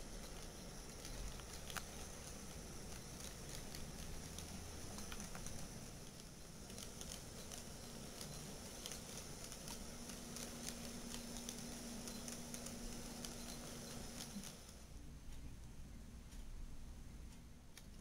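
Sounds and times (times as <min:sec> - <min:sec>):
model train wheels clicking: 0:00.0 - 0:14.9
low steady hum: 0:00.0 - 0:18.0.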